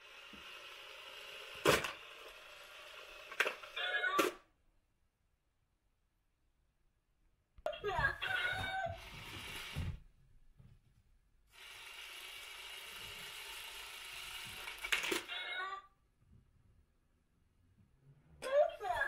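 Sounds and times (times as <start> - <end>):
small motor whirring: 0.0 - 3.8, 11.5 - 15.3
toy mechanism click: 14.6 - 15.5.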